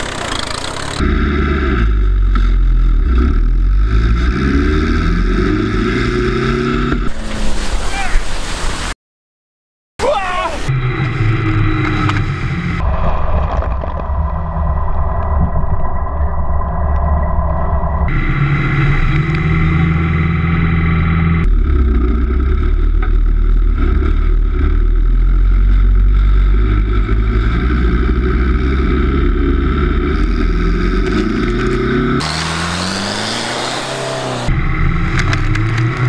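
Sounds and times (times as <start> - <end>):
buggy engine running: 0.0 - 7.2, 10.7 - 36.0.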